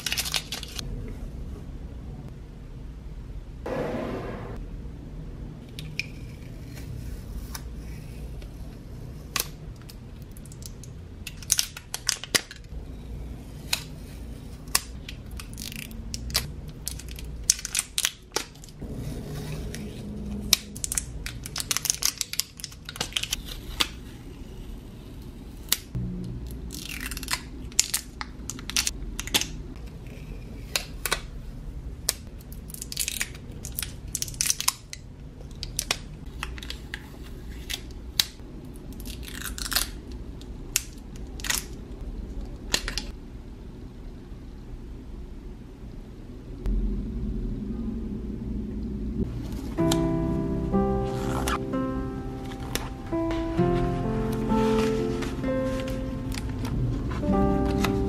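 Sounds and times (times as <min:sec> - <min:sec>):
plastic film crinkling and tearing: 0:00.0 - 0:00.8, 0:19.6 - 0:24.4, 0:26.7 - 0:29.5, 0:32.5 - 0:35.0, 0:53.7 - 0:58.0.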